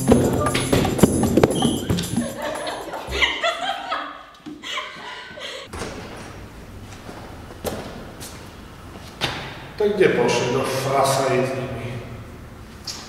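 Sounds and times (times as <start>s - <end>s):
thuds: 0.0s - 2.4s
background music with percussion: 0.0s - 3.2s
people laughing: 1.7s - 5.7s.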